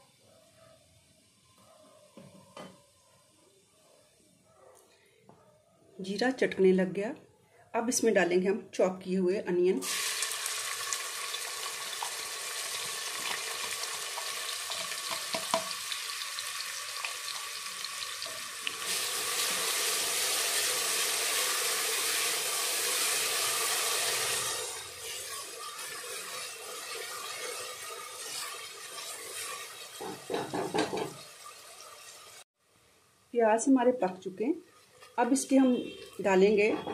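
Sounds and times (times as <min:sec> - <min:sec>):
onions sizzling in hot oil: 0:09.8 - 0:32.4.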